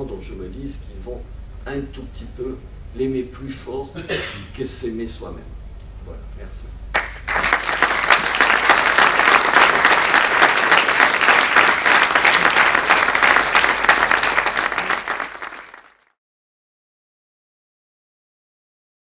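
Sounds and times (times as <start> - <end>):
audience applause: 7.0 - 16.1.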